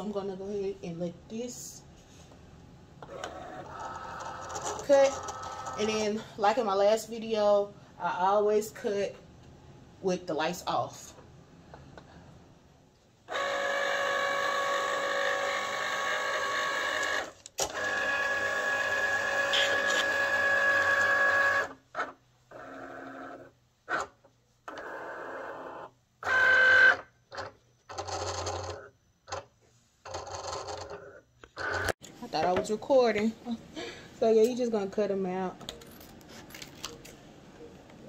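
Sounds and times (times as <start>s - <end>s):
cutting machine motors whirring: 13.3s - 23.2s.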